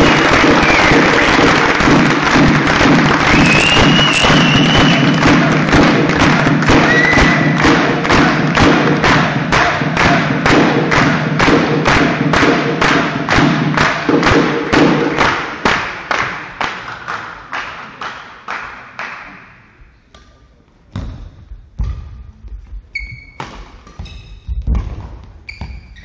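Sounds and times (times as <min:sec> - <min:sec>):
spectators clapping in unison: 0:00.0 - 0:19.8
shoes squeaking on court floor: 0:22.8 - 0:26.0
racket hitting shuttlecock: 0:23.2 - 0:26.0.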